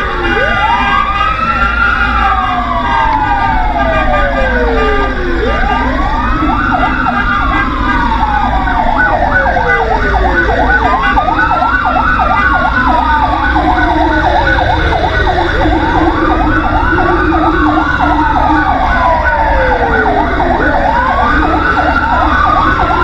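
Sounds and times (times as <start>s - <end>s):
fire engine siren wail: 0.0s - 23.0s
siren yelp: 0.0s - 23.0s
truck engine rumble: 0.0s - 23.0s.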